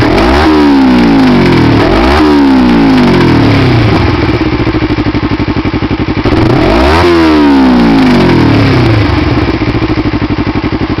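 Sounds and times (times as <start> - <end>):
motorcycle engine idling and revving: 0.0 - 11.0.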